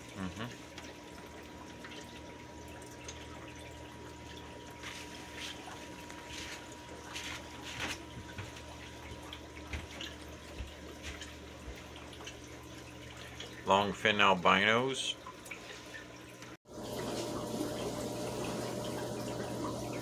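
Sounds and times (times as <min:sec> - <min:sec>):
water trickling and dripping: 0:00.0 - 0:20.0.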